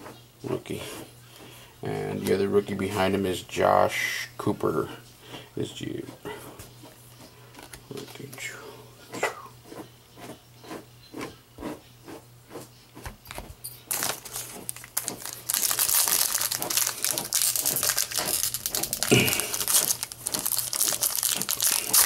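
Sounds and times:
foil wrapper crinkling and tearing: 13.9 - 22.0.

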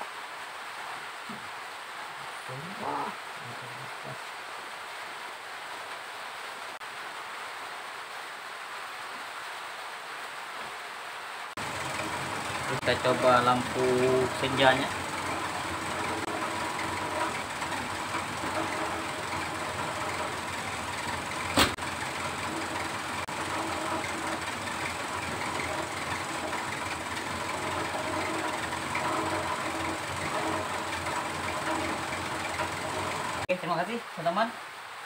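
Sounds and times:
car engine idling: 11.6 - 33.5.

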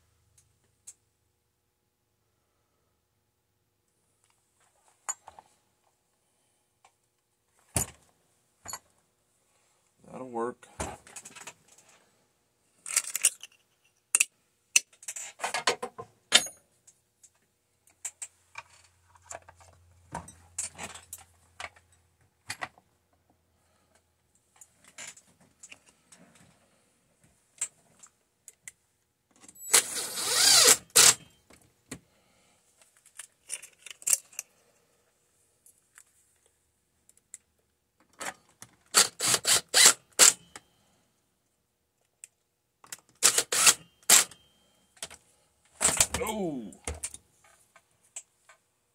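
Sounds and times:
chainsaw parts clicking and rattling: 11.0 - 11.9, 12.8 - 16.0, 17.9 - 22.0, 32.9 - 34.6.

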